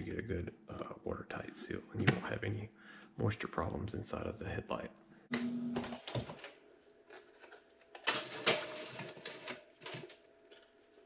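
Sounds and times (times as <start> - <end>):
wire rack rattling and sliding: 8.0 - 10.2.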